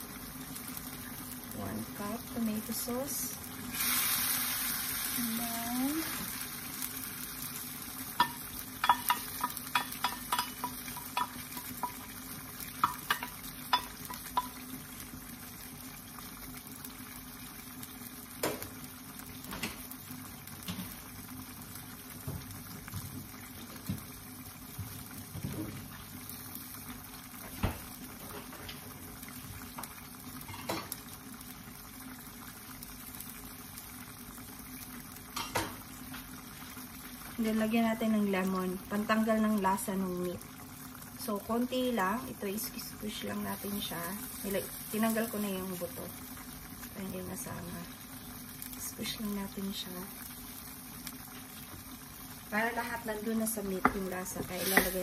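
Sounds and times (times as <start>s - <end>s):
meat sizzling in sauce: 0.0s - 55.0s
sauce popping: 6.4s - 15.2s, 53.8s - 55.0s.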